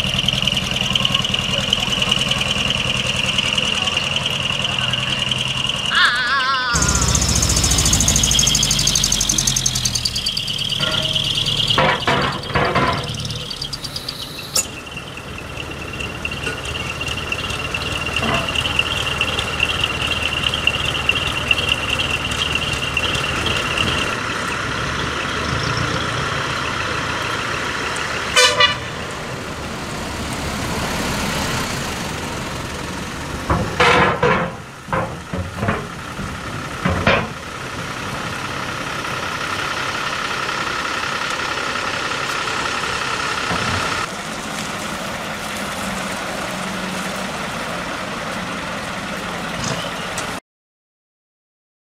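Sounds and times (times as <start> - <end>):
diesel engines running: 0.0 - 50.4
horn toots: 28.3 - 29.0.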